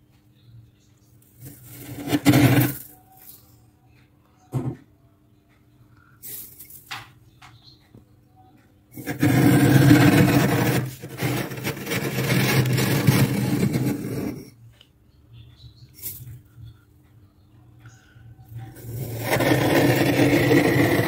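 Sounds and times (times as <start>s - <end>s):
glass scraping freezer frost: 1.4s - 2.8s, 9.0s - 14.5s, 18.8s - 21.0s.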